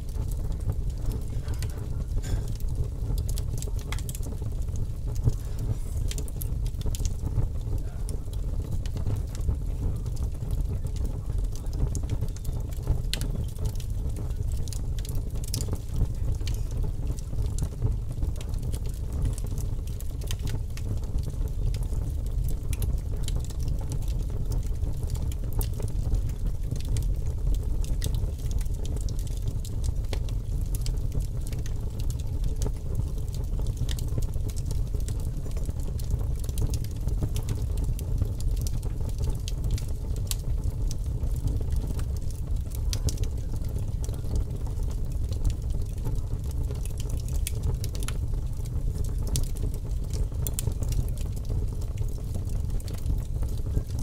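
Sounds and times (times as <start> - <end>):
wood fire crackling: 0.0 - 54.0.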